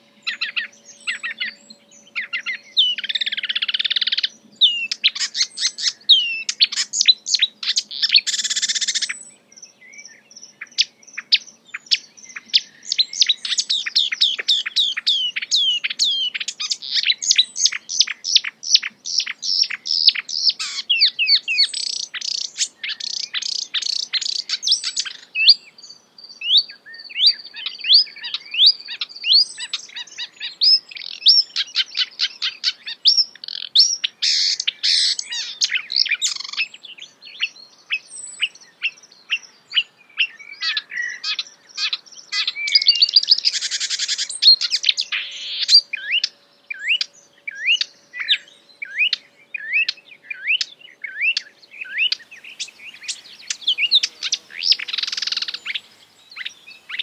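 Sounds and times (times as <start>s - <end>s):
warbler singing: 0.0s - 57.0s.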